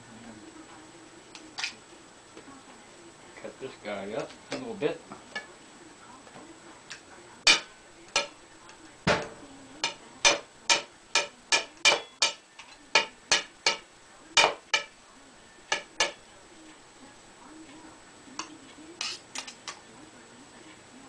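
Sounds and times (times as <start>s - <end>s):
knife tapping on ceramic plate: 9.1s - 13.8s, 14.4s - 14.9s, 15.7s - 16.2s.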